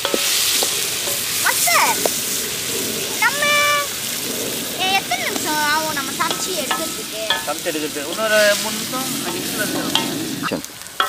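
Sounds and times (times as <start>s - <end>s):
spatula scraping pan: 0.0s - 10.7s
food sizzling in oil: 0.0s - 11.0s
short pitched voice-like sounds: 3.2s - 3.9s.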